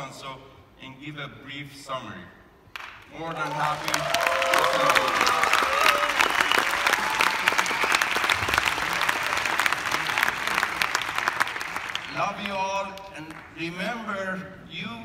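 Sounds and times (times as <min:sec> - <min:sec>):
large audience applauding: 0:02.8 - 0:13.6.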